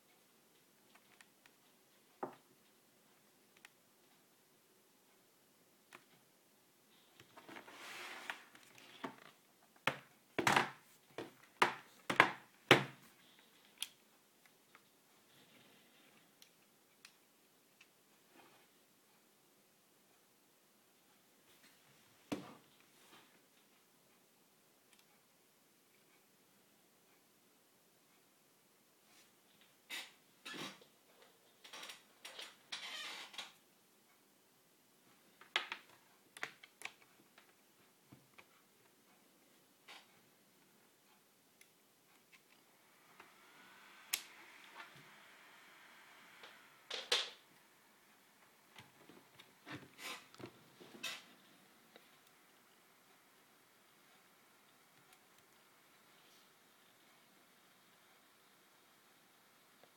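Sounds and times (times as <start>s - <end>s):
cable rustling and scraping: 6.9s - 9.5s, 42.1s - 59.2s.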